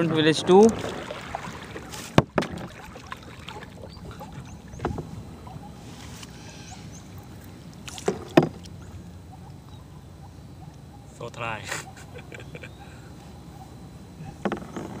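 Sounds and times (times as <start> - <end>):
water rushing past boat: 0.0 - 5.1.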